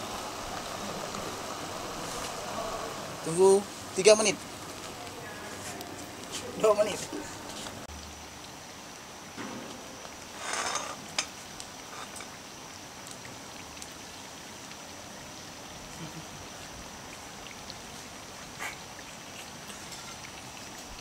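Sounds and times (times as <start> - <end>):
oil sizzling in a pan: 0.0 - 14.6, 19.6 - 21.0.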